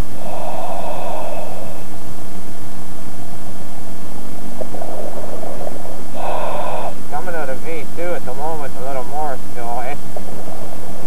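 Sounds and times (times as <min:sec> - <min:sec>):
diver breathing: 0:00.0 - 0:02.0, 0:04.6 - 0:07.5
steady electrical hum: 0:00.0 - 0:11.0.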